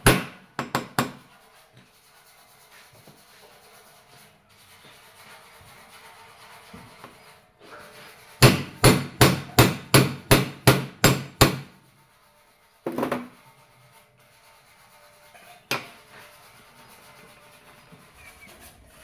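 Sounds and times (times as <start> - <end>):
hammer striking steel tube: 8.4 - 11.7.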